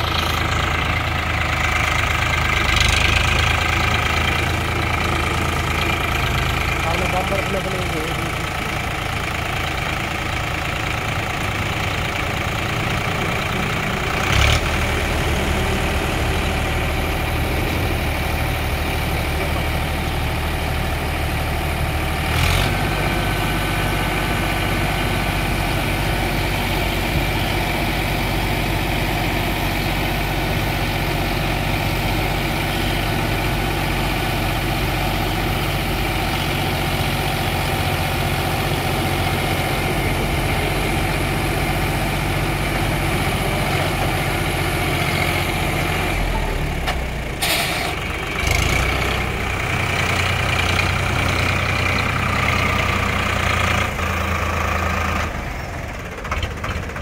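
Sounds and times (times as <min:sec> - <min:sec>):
engine knock: 0:00.0 - 0:14.8, 0:48.0 - 0:57.0
tractor diesel engine idling: 0:00.0 - 0:57.0.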